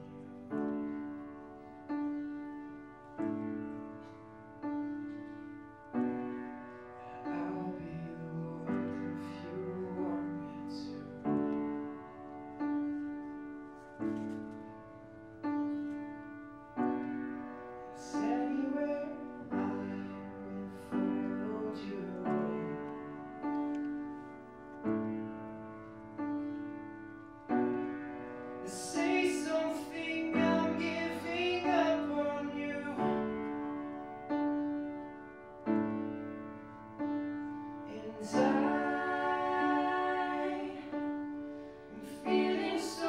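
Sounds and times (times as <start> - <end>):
piano playing slow chords: 0.0 - 43.0
person singing softly: 7.0 - 11.8, 37.8 - 43.0.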